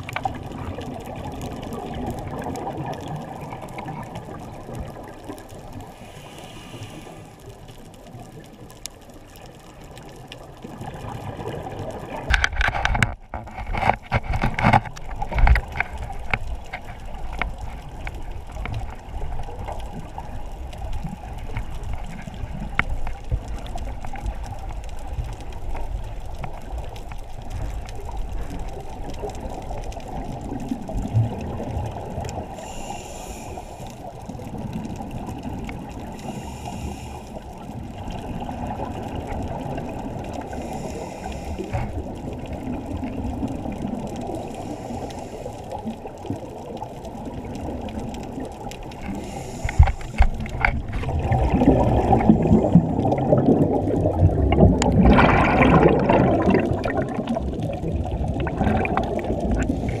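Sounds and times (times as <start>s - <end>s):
muffled underwater noise: 0.0s - 60.0s
regulator exhaust bubbles: 49.2s - 60.0s.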